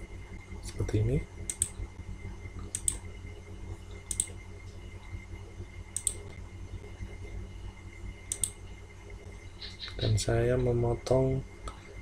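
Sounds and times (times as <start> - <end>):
low steady hum: 0.0 - 12.0
computer mouse clicks: 1.5 - 1.8, 2.6 - 3.0, 4.1 - 4.4, 6.0 - 6.3, 8.3 - 8.6.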